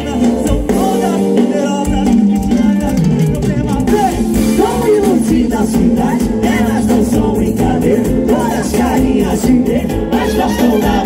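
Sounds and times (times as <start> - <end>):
person singing: 0.0 - 11.0
loud dance music: 2.2 - 11.0.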